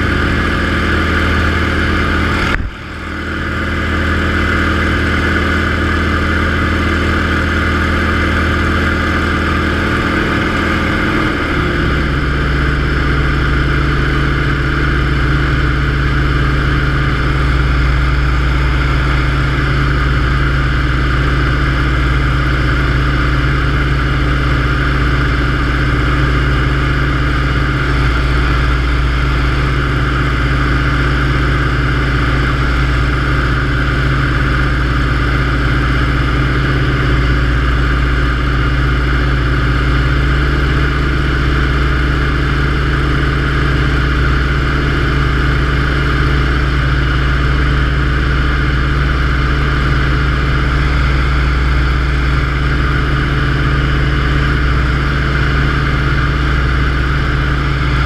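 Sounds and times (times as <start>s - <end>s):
propeller plane engine running: 0.0s - 58.0s.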